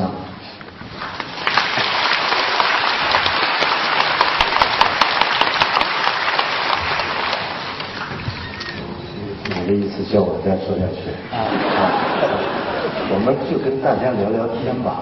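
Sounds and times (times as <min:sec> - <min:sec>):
audience applauding: 0:01.1 - 0:08.6.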